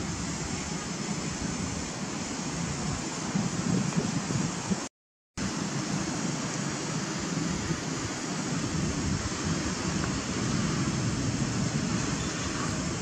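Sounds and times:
steady rushing noise: 0.0 - 13.0.

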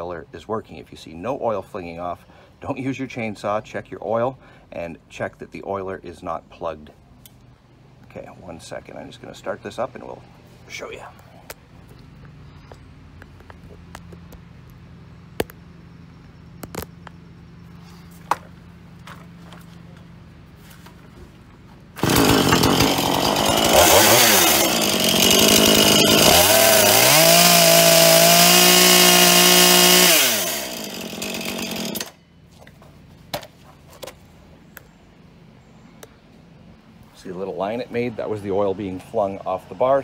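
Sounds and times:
chainsaw revving: 22.0 - 32.2.

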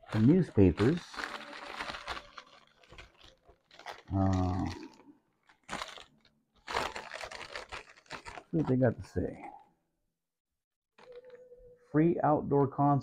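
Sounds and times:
paper rustling and crumpling: 0.0 - 9.4, 11.0 - 11.6
paper tearing: 0.2 - 4.7
person humming: 4.1 - 4.9.

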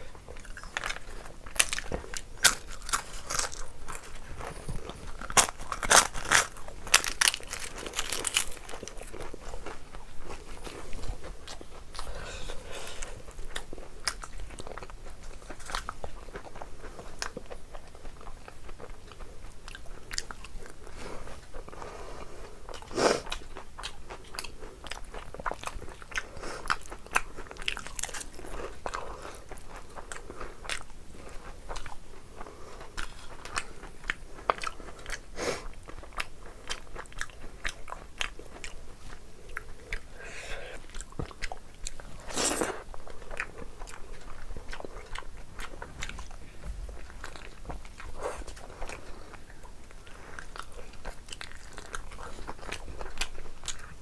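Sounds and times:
chewing and mouth smacks: 0.3 - 12.2, 22.7 - 32.0, 32.7 - 54.0.

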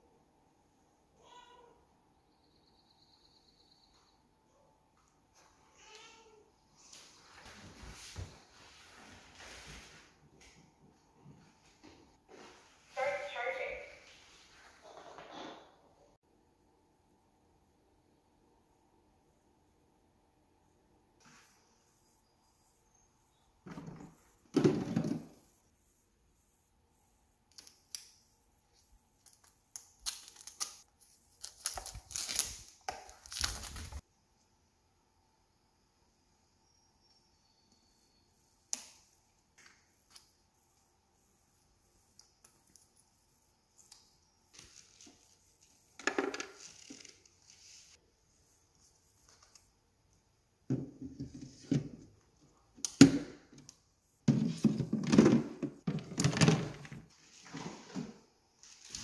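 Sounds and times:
plastic tanks knocking and clattering: 23.6 - 25.4, 54.3 - 58.2.

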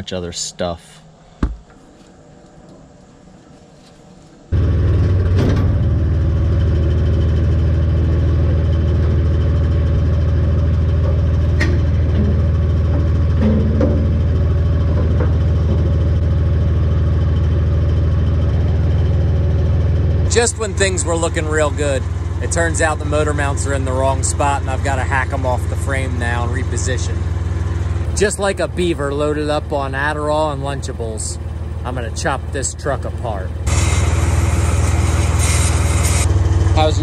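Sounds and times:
engine idling: 4.4 - 37.0
light metal clanks: 11.0 - 16.1.

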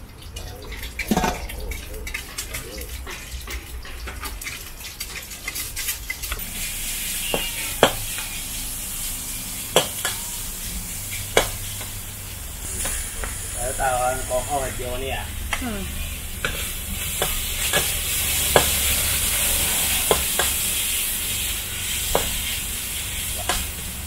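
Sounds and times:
food sizzling: 0.0 - 24.0
metal spatula scraping wok: 0.7 - 24.0
spatula clanking on wok: 7.1 - 8.5, 9.7 - 12.0, 16.4 - 21.0.

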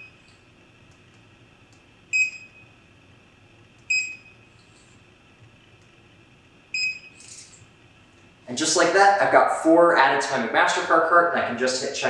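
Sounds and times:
scanner short high beeps: 2.1 - 2.7, 3.9 - 4.5, 6.7 - 7.3.

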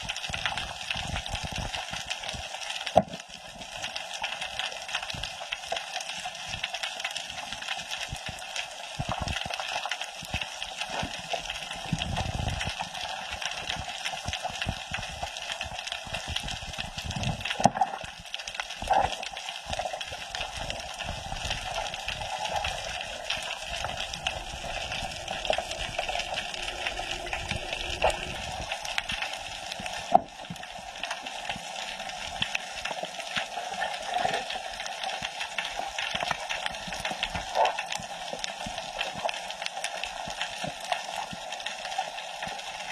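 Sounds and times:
underwater crackle of clicks: 0.0 - 42.9
low rumble: 23.8 - 30.2.

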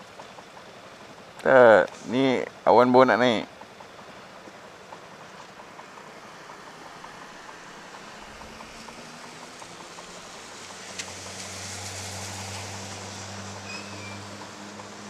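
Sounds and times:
faint ticking: 0.0 - 11.5
passing vehicle engine hum: 0.0 - 15.0
scooter engines idling: 0.0 - 15.0.

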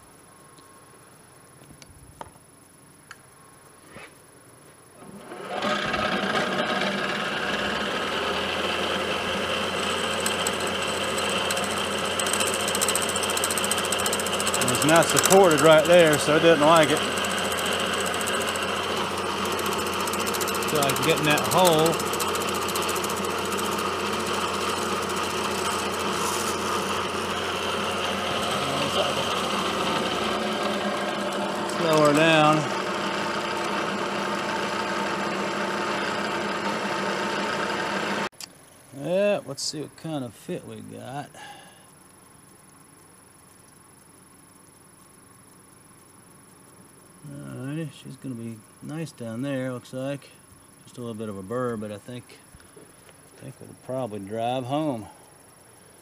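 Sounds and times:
milling machine spindle running: 5.0 - 38.3
cutter rattling into metal: 10.2 - 24.4.

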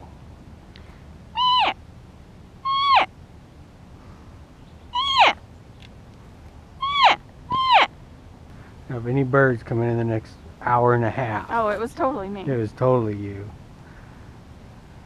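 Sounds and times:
elk call mews: 1.4 - 1.8, 2.6 - 3.1, 4.9 - 5.4, 6.8 - 7.9.

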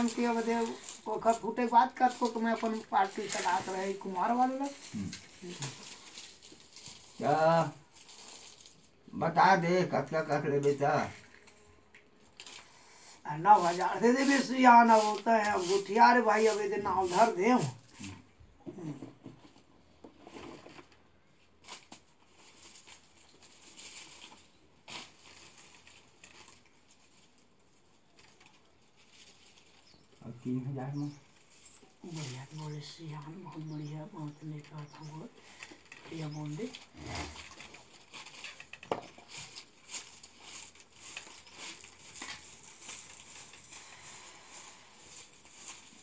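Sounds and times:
faint handling rustles: 0.0 - 9.0, 31.1 - 46.0
faint rustling: 10.7 - 46.0.

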